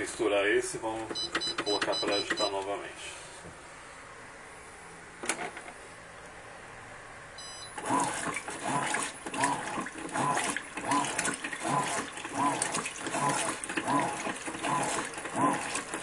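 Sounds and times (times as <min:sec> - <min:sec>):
washing machine click: 0:01.0 - 0:02.7
washing machine agitator sloshing: 0:07.7 - 0:16.0.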